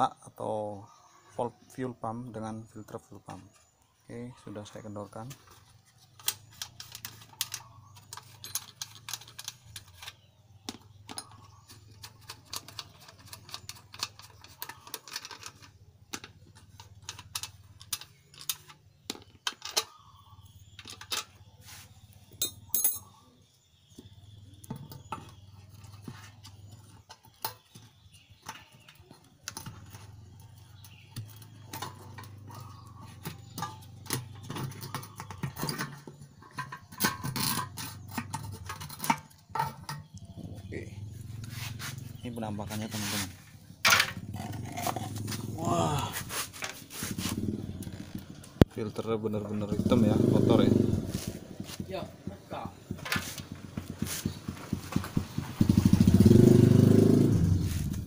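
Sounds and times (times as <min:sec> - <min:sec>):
small metallic clicks: 0:06.2 - 0:20.0.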